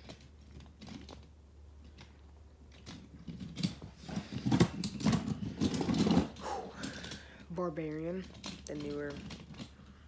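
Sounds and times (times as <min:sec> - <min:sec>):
toy trucks clattering together: 0:01.8 - 0:07.4.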